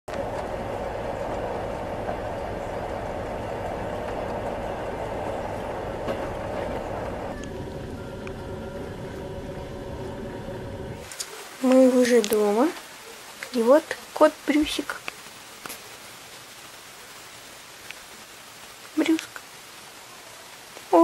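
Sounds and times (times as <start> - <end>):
train wheels rumbling on rails: 0.1 - 11.0.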